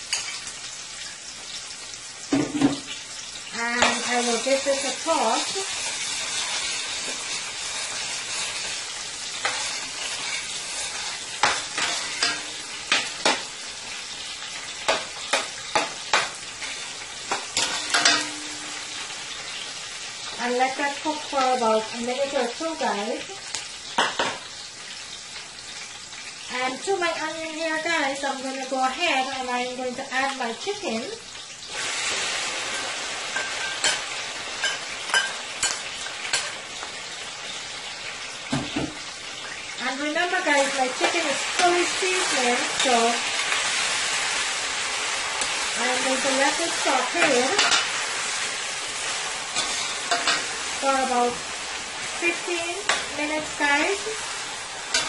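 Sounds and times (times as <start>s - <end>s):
onion sizzling in oil: 0.0s - 55.0s
metal spoon scraping pot: 3.8s - 8.8s.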